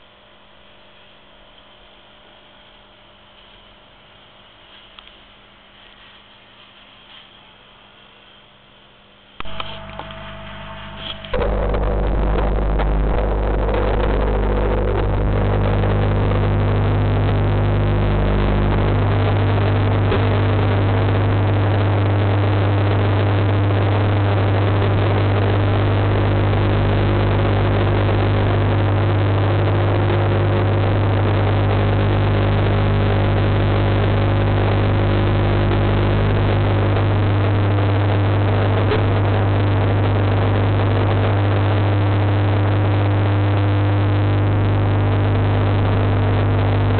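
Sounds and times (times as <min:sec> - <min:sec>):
aquarium pump hum underwater: 0:00.0 - 0:46.9.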